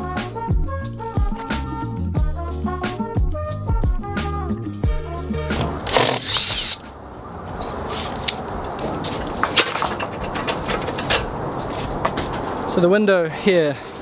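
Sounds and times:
stepladder clicks and knocks: 0:09.4 - 0:11.4.

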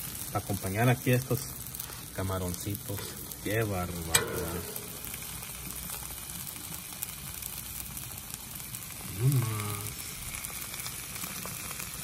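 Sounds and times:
food sizzling on a griddle: 0:00.0 - 0:12.0
man humming: 0:09.0 - 0:10.0.

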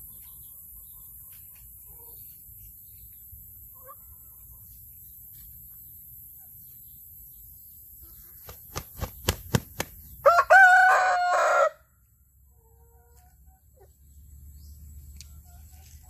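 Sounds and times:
rooster crowing: 0:10.2 - 0:11.9.

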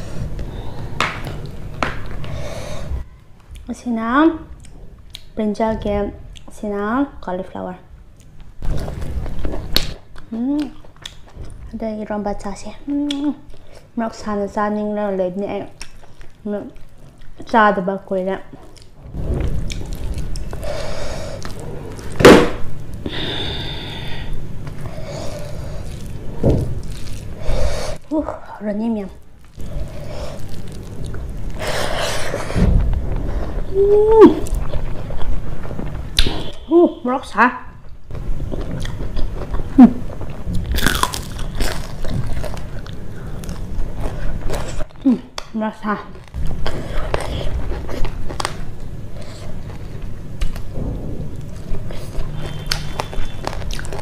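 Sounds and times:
crunchy chewing: 0:18.5 - 0:22.2, 0:24.6 - 0:28.0, 0:29.4 - 0:32.5, 0:38.4 - 0:45.2, 0:46.1 - 0:50.7, 0:51.3 - 0:54.0
low rumble: 0:18.9 - 0:27.4, 0:32.5 - 0:36.7, 0:49.8 - 0:54.0
sharp thump: 0:22.2 - 0:22.6, 0:32.6 - 0:33.1.

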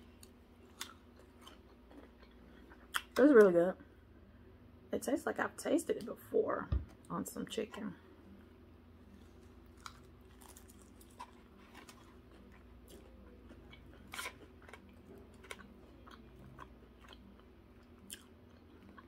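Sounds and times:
chewing crispy food: 0:00.0 - 0:03.3, 0:09.0 - 0:19.0
faint steady hum: 0:00.0 - 0:19.0.

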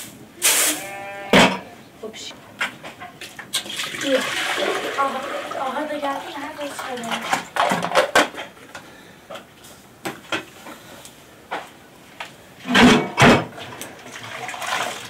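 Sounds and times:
metal cookware clattering: 0:12.6 - 0:13.5.

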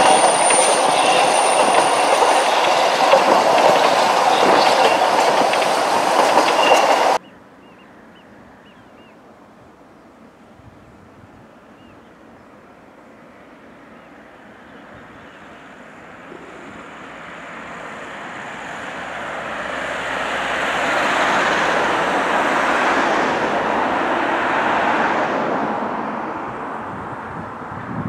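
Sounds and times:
steam locomotive hissing: 0:00.0 - 0:07.2.

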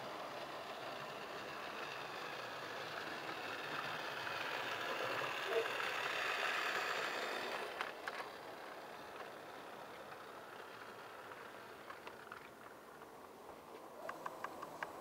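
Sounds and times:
model train running on track: 0:00.0 - 0:15.0
sharp clicks: 0:14.0 - 0:15.0.

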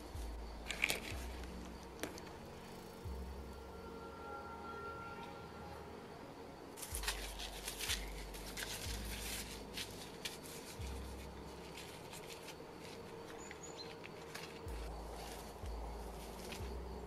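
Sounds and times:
seeds rustling onto soil: 0:00.0 - 0:02.9, 0:06.8 - 0:17.0
low drone: 0:00.0 - 0:17.0.

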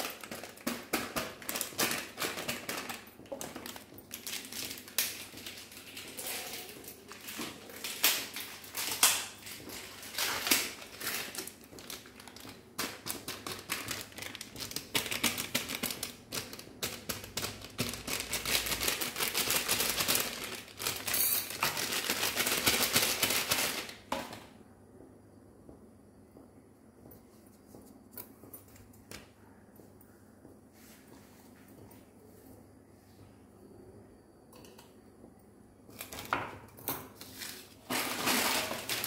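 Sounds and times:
plastic packet crinkling: 0:00.0 - 0:24.1, 0:37.2 - 0:39.0
packet tearing open: 0:37.9 - 0:39.0.

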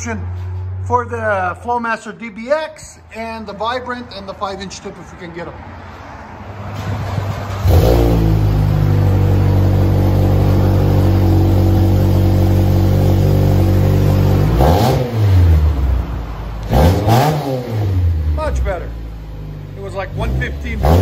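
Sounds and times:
car engine revving: 0:06.5 - 0:21.0.

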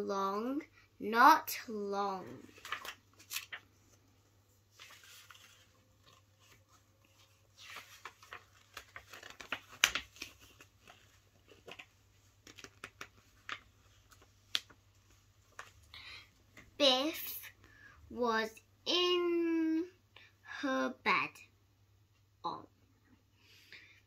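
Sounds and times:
paper pages rustling: 0:02.3 - 0:16.8.

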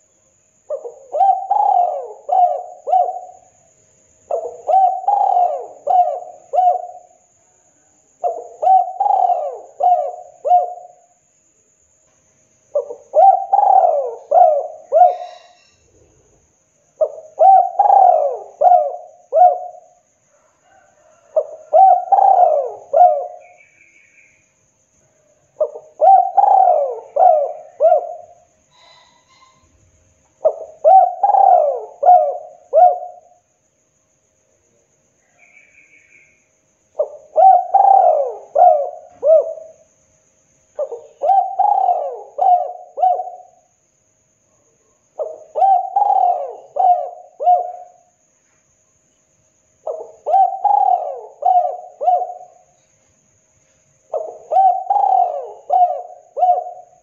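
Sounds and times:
dove cooing: 0:00.7 - 0:03.6, 0:04.3 - 0:07.2, 0:08.2 - 0:11.0, 0:12.7 - 0:15.8, 0:17.0 - 0:23.6, 0:25.6 - 0:29.6, 0:30.4 - 0:33.4, 0:37.0 - 0:39.8, 0:40.8 - 0:43.7, 0:45.2 - 0:48.1, 0:49.8 - 0:52.8, 0:54.1 - 0:57.0.

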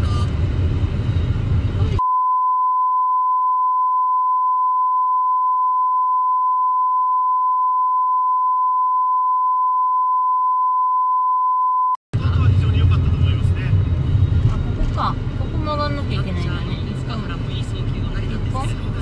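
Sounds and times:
censor bleep tone: 0:02.0 - 0:12.0.

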